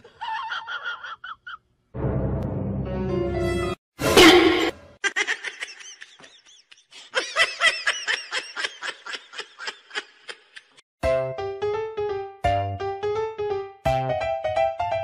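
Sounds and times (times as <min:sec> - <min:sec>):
person giggling: 0:00.0 - 0:01.6, 0:05.0 - 0:10.8.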